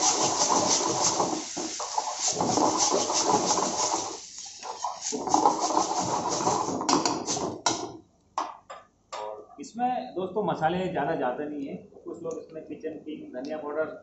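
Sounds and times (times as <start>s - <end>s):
steel ladle scraping a pan: 0.0s - 7.5s
food sizzling in a wok: 0.0s - 7.6s.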